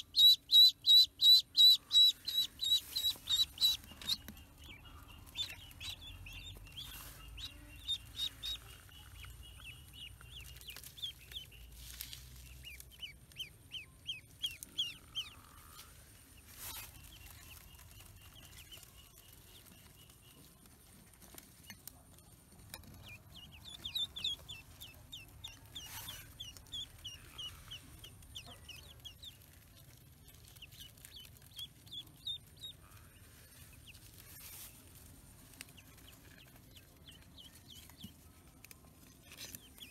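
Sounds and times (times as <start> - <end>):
duckling peeping: 0.0 - 21.9, 22.8 - 39.9.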